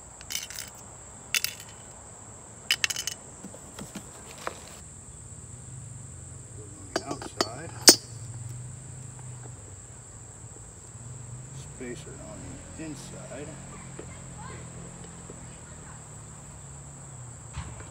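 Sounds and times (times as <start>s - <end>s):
crickets chirring: 0.0s - 17.9s
metal clinks of cart wheels: 0.1s - 0.8s, 1.4s - 1.9s, 2.7s - 3.2s, 6.9s - 8.5s.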